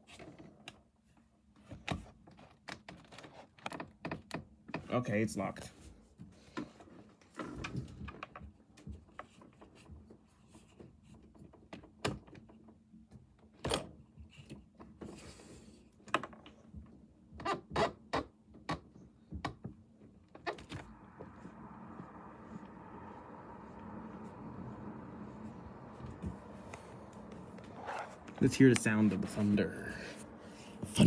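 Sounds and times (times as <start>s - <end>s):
wind rushing: 20.7s - 31.0s.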